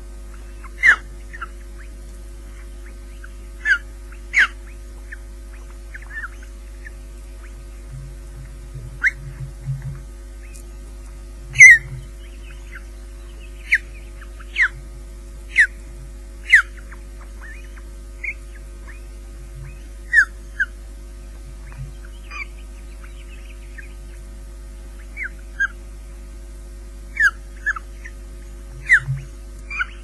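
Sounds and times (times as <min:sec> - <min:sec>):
electrical hum: 0:00.0 - 0:30.0
osprey whistled calls: 0:00.5 - 0:07.7, 0:09.0 - 0:09.5, 0:11.5 - 0:14.8, 0:15.5 - 0:20.8, 0:21.6 - 0:24.2, 0:25.0 - 0:25.8, 0:27.1 - 0:28.2, 0:28.8 - 0:30.0.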